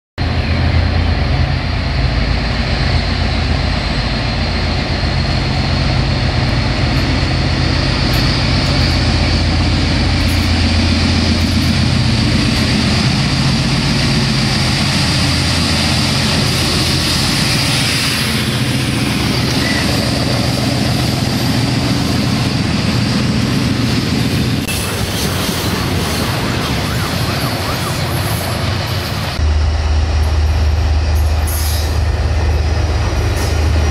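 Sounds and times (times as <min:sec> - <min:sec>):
locomotive engine droning: 0:00.2 - 0:33.9
freight wagons rolling on rails: 0:06.4 - 0:29.4, 0:30.2 - 0:33.9.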